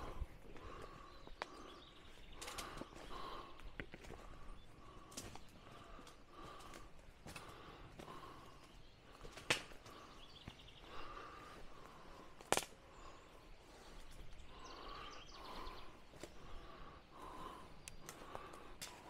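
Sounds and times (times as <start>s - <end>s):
footsteps through dry brush: 0.0s - 14.7s, 15.4s - 19.0s
sticks snapping: 2.4s - 2.8s, 9.2s - 10.0s, 12.4s - 12.8s, 17.8s - 19.0s.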